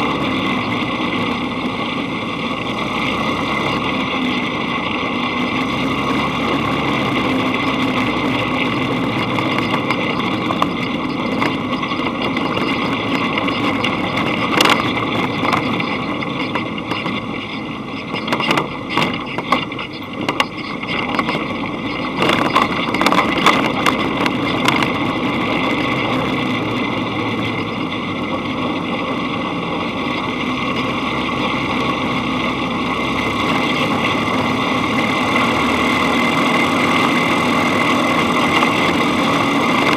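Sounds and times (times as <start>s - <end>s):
dune buggy engine running: 0.0s - 39.9s
sharp knocks and rattles: 6.6s - 26.4s.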